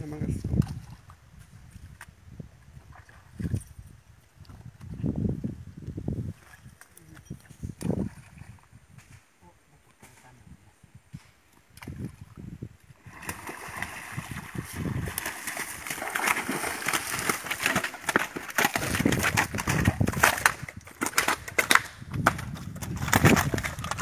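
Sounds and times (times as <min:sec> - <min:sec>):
fish splashing in water: 0:13.0 - 0:19.0
fish slapping on wet sand: 0:13.1 - 0:20.5.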